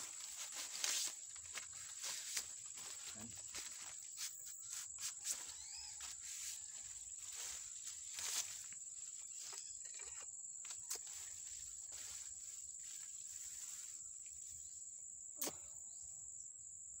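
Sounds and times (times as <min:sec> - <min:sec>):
foliage rustling: 0:00.0 - 0:09.6
high-pitched insect drone: 0:00.0 - 0:17.0.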